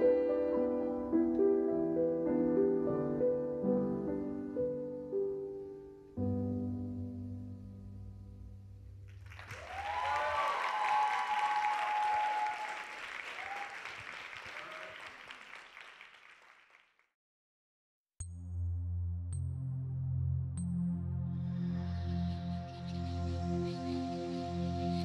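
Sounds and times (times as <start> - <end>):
piano chord: 0.0 - 9.0
audience applause: 9.1 - 17.0
whoops and cheers: 9.4 - 15.2.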